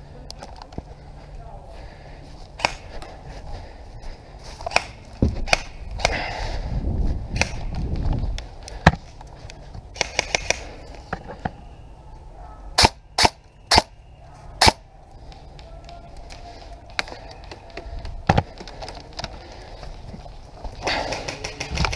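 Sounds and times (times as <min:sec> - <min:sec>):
low rumble of movement: 0:00.0 - 0:21.9
airsoft rifle shots: 0:02.6 - 0:02.9, 0:04.7 - 0:06.2, 0:07.3 - 0:07.7, 0:10.0 - 0:10.7, 0:12.8 - 0:14.0, 0:14.6 - 0:14.8.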